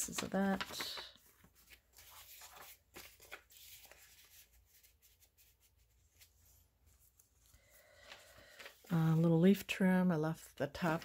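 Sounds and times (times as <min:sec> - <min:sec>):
paper pages rustling: 0:00.0 - 0:09.7.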